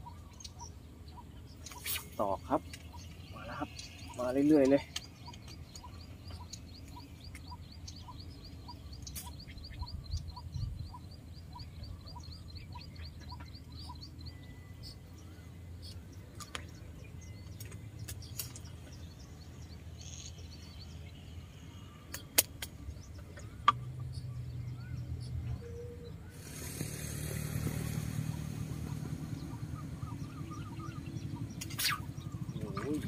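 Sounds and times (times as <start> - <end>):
high chirping: 0.0 - 21.2
distant road traffic rumble: 0.0 - 33.0
sharp clicks: 4.6 - 7.6.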